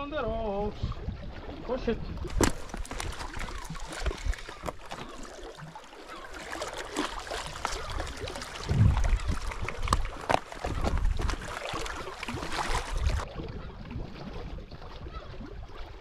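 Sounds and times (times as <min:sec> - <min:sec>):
wind buffeting microphone: 0:00.0 - 0:04.9, 0:07.7 - 0:15.5
waves lapping on rocks: 0:00.1 - 0:13.3.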